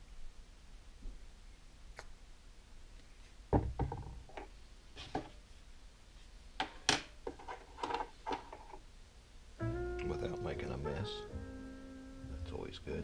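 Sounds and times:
knocks on wooden workbench: 0:03.5 - 0:04.2.

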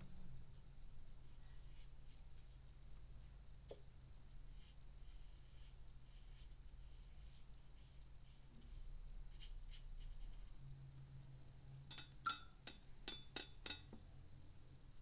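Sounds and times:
paintbrush clinking against glass jar: 0:11.9 - 0:14.0.

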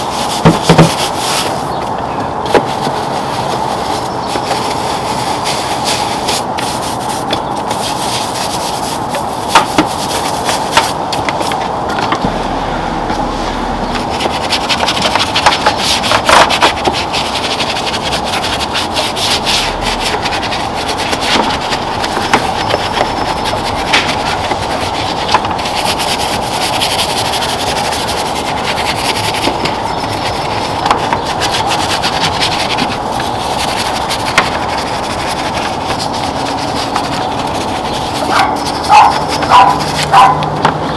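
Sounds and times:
brushes scrubbing plastic parts: 0:02.8 - 0:11.6, 0:14.1 - 0:40.3.

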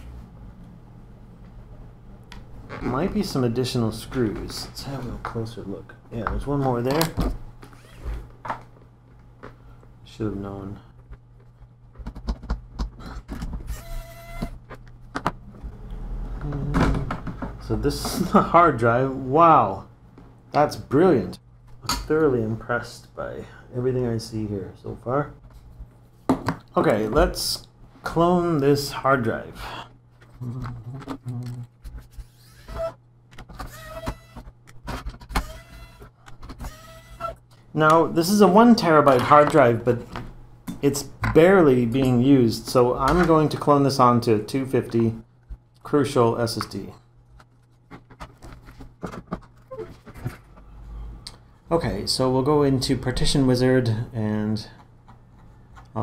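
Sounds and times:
electric screwdriver whining: 0:13.7 - 0:14.6, 0:33.7 - 0:34.5, 0:35.3 - 0:37.4.

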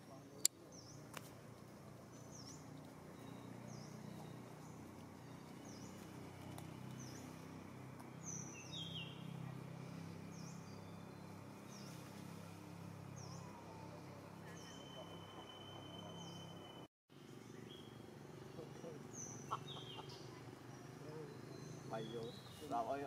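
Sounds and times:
small bird chirping: 0:02.1 - 0:07.6, 0:13.1 - 0:23.0.

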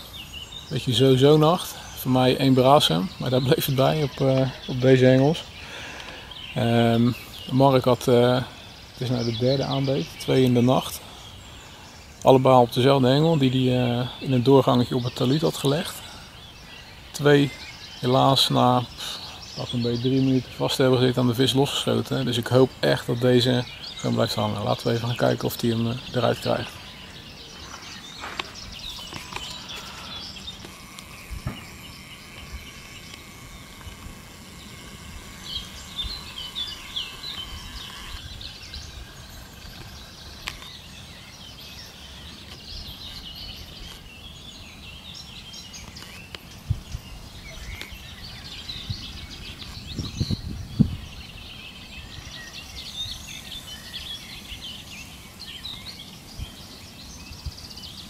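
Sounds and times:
outdoor background hiss: 0:00.0 - 0:58.0
small birds chirping: 0:00.0 - 0:58.0.

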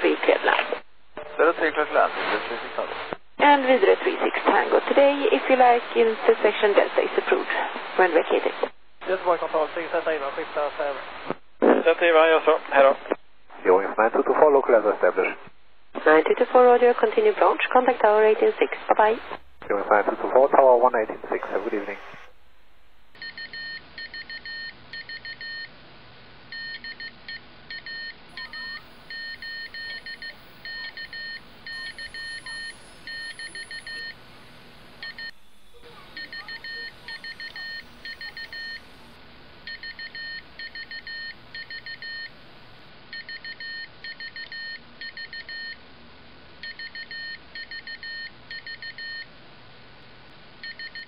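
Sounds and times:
radio receiver hiss: 0:00.0 - 0:03.2, 0:06.4 - 0:16.3, 0:18.0 - 0:22.9
morse code beeps: 0:23.2 - 0:25.7, 0:26.5 - 0:34.2, 0:35.0 - 0:39.1, 0:39.7 - 0:42.3, 0:43.1 - 0:45.8, 0:46.6 - 0:49.3, 0:50.6 - 0:51.0.

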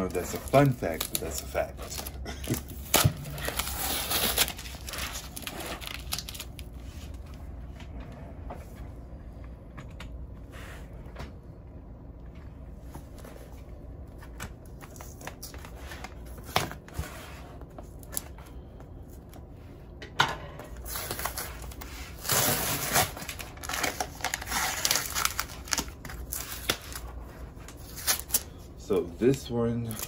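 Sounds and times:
scratching and peeling packing tape: 0:00.2 - 0:06.7, 0:20.9 - 0:27.0, 0:27.6 - 0:28.5.

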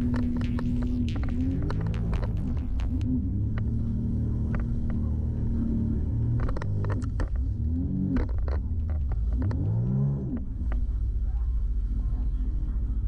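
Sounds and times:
jet ski engine running: 0:00.0 - 0:09.5.

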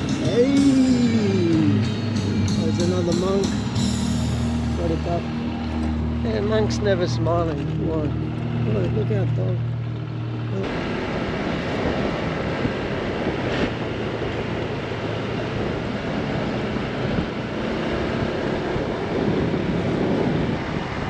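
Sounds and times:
road noise: 0:00.0 - 0:21.0
scooter engine: 0:00.0 - 0:21.0
wind buffeting microphone: 0:04.7 - 0:21.0.

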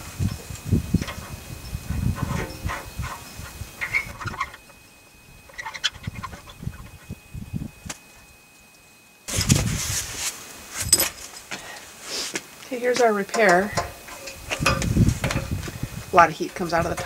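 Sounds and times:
hands handling copper pipe: 0:10.2 - 0:11.6.

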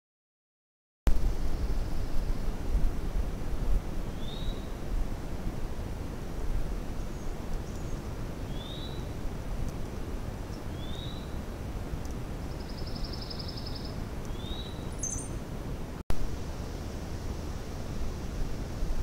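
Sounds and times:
low background noise: 0:01.1 - 0:19.0
bird trill: 0:07.1 - 0:09.1, 0:10.5 - 0:11.4, 0:12.5 - 0:15.4
high bird chirp: 0:07.1 - 0:09.1, 0:10.5 - 0:11.4, 0:12.5 - 0:15.4
bird whistled notes: 0:10.7 - 0:11.3, 0:12.6 - 0:15.4.

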